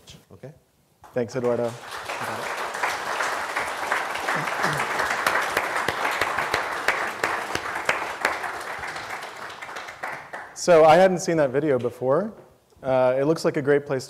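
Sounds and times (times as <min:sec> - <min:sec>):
audience applauding: 0:01.1 - 0:11.1.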